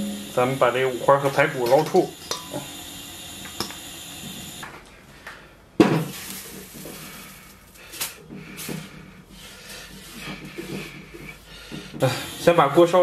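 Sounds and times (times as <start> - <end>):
cookware clattering: 1.7 - 2.6
cloth rubbing inside wet wok: 6.1 - 12.0.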